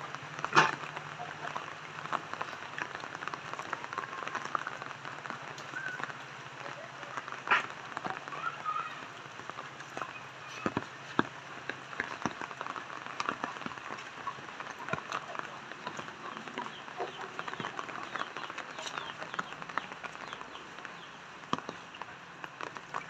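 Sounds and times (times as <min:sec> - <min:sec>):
rain on wet pavement: 0:00.0 - 0:23.0.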